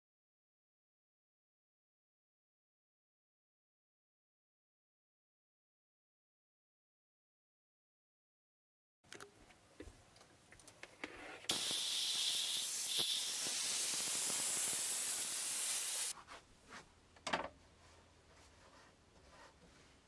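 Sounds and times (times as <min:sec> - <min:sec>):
pressurised spray hissing: 0:11.5 - 0:16.1.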